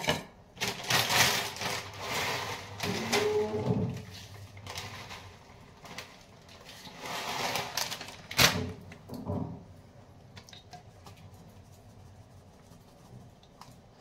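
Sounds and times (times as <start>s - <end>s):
plastic packet rustling: 0.6s - 8.8s.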